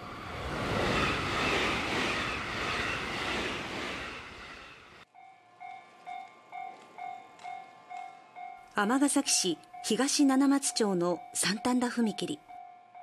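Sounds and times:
train rushing rumble: 0:00.0 - 0:05.0
crossing warning bell dinging: 0:05.2 - 0:13.0.

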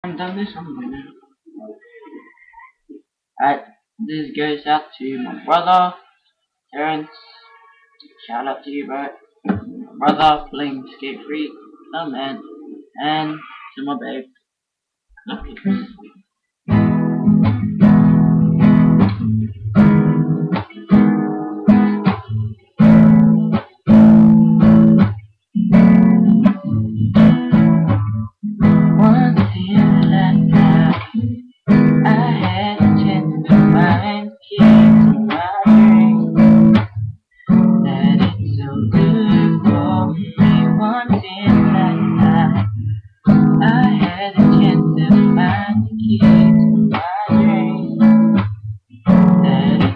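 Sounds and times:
acoustic guitar strumming: 0:16.7 - 0:49.9.

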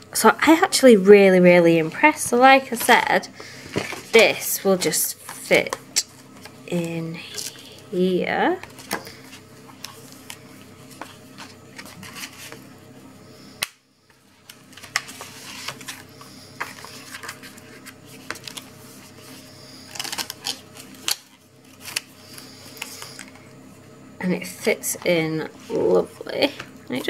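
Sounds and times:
paper clicking and rustling: 0:14.4 - 0:18.7, 0:19.9 - 0:23.4.

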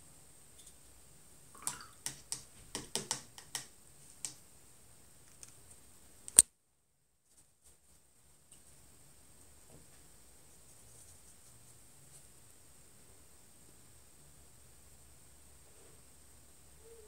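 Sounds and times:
paintbrush clicking in paint box: 0:02.0 - 0:04.4.

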